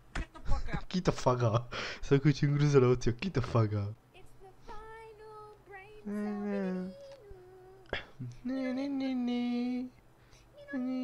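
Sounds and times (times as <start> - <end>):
person humming long notes: 6.0 - 10.0, 10.7 - 11.0.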